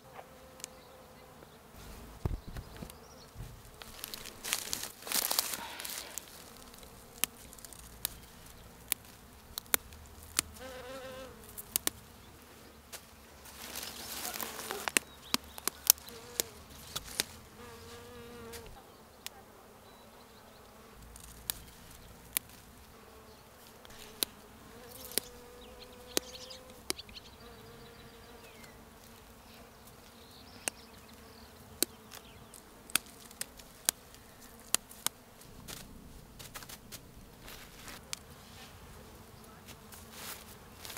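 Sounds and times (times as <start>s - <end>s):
flying insects buzzing: 0.0s - 40.9s
flower stems snapping: 3.6s - 10.8s, 11.4s - 12.0s, 13.6s - 17.4s, 21.0s - 22.8s, 23.8s - 24.4s, 25.0s - 25.3s, 31.8s - 38.3s.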